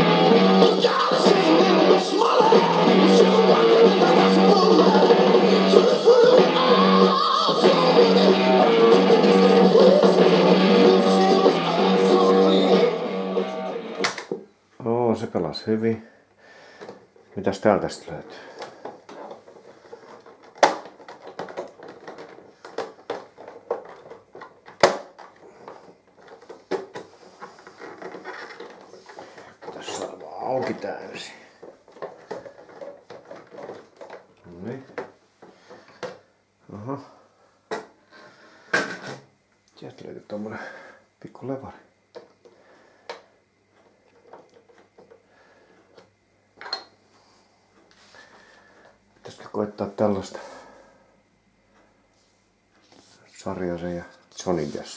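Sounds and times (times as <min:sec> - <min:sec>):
hands tapping plastic cover: 0:18.5 - 0:30.9
plastic clicks and knocks: 0:20.1 - 0:27.1.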